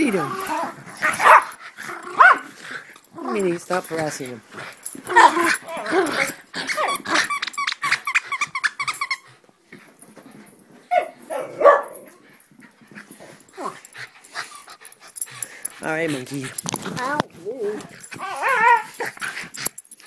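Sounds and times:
dogs growling: 0.0 - 9.0, 11.2 - 20.0
dogs barking: 1.0 - 2.5, 10.9 - 12.1.

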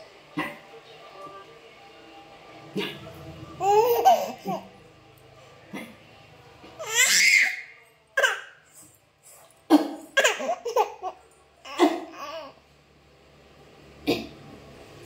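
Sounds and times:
baby laughing: 3.6 - 4.7, 10.2 - 12.5.

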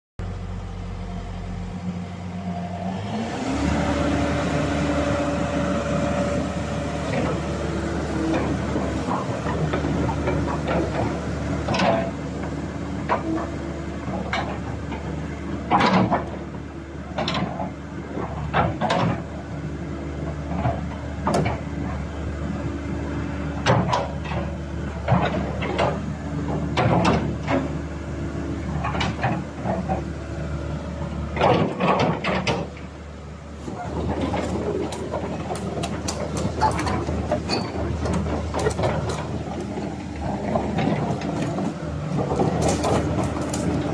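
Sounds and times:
excavator diesel engine running: 0.2 - 43.9
metal clanks and knocks: 31.4 - 32.9, 33.7 - 43.9.

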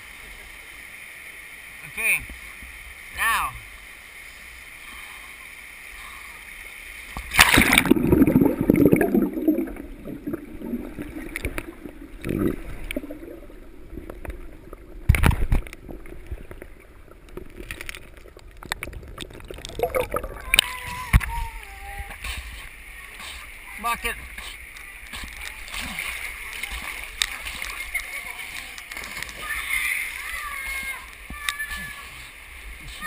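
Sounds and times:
river water flowing: 0.0 - 33.0
water splash: 7.1 - 21.5, 24.3 - 33.0
underwater gurgling and bubbling: 7.3 - 21.3.

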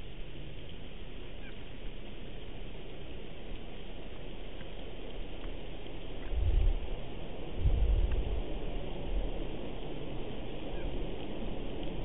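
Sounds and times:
steady wind noise: 0.0 - 12.0
gust buffeting microphone: 6.1 - 12.0.

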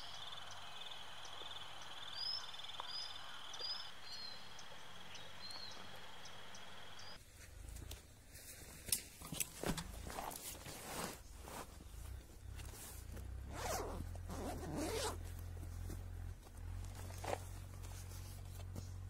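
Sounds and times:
bird chirps: 0.0 - 7.2.

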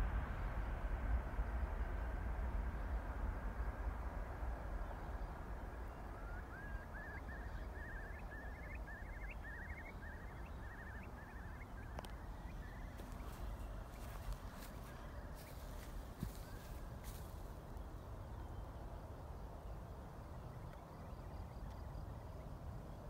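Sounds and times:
distant jet engine roar: 0.0 - 23.0
songbird trilling: 6.0 - 17.4.

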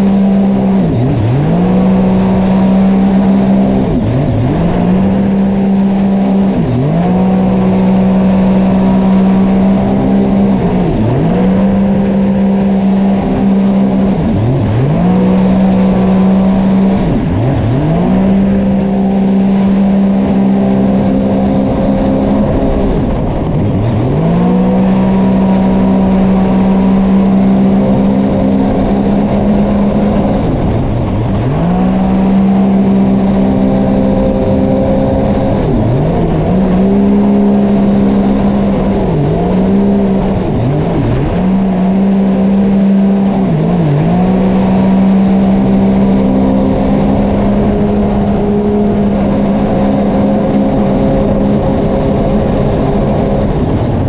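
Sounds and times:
watercraft engine revving: 0.0 - 54.0.

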